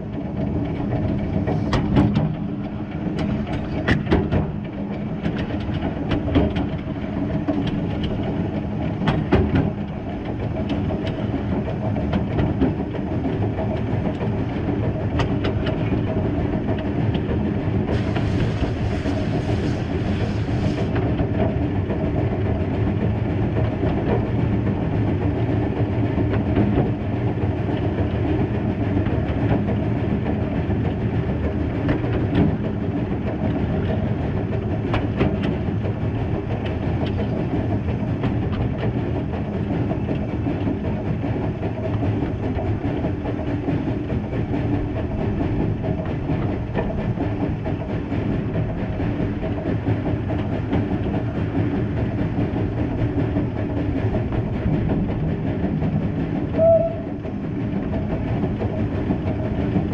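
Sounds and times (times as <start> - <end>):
wheels rumbling on rail: 0.0 - 59.9
clicks over rail joints: 0.1 - 18.9, 22.8 - 59.9
steam hiss: 17.9 - 20.9.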